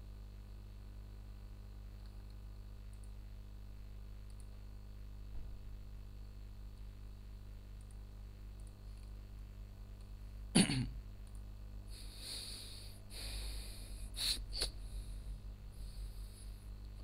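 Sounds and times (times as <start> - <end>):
low electrical hum: 0.0 - 17.0
person coughing: 10.6 - 11.0
breathy hisses: 11.9 - 16.7.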